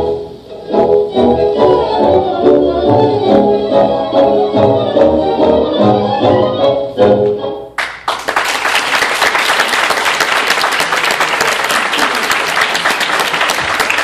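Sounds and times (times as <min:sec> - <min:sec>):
tango song: 0:00.0 - 0:07.8
audience applause: 0:07.8 - 0:14.0.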